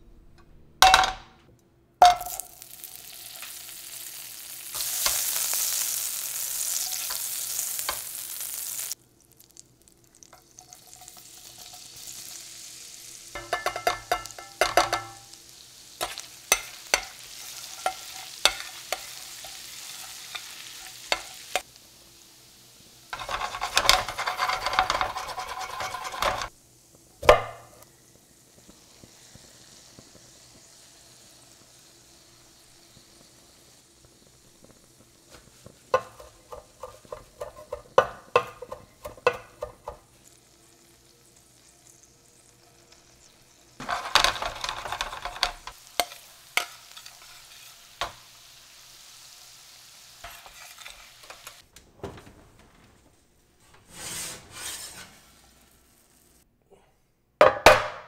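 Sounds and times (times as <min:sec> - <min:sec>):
garlic sizzling in butter: 0:02.0 - 0:51.7, 0:53.9 - 0:56.5
metal spatula scraping pan: 0:16.0 - 0:21.6, 0:23.2 - 0:26.5, 0:35.9 - 0:40.0, 0:43.8 - 0:48.2, 0:50.2 - 0:51.6, 0:53.6 - 0:55.8.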